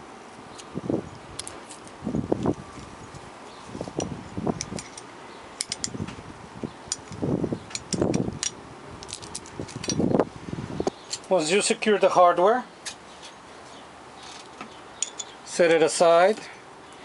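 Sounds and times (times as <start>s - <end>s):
metal hardware clinking: 4.0s - 6.0s, 6.9s - 10.1s, 14.3s - 15.4s
handling rustle: 9.0s - 10.2s.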